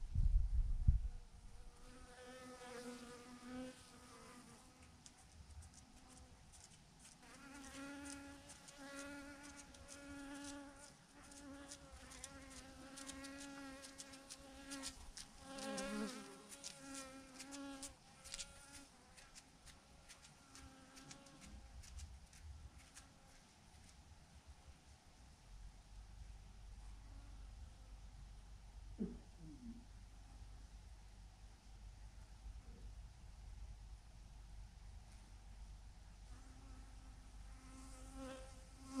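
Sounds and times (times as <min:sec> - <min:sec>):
honeybees buzzing: 0:07.3 - 0:18.9.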